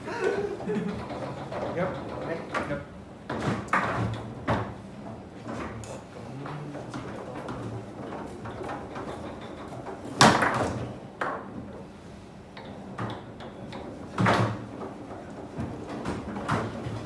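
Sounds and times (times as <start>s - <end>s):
foosball ball and rods clacking: 0.2s - 11.9s, 12.5s - 17.0s.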